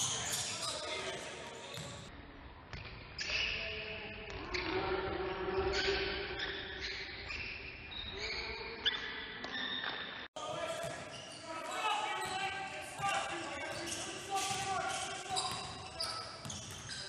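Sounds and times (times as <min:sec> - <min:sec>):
shoe squeaks: 0:00.0 - 0:02.1, 0:05.6 - 0:17.0.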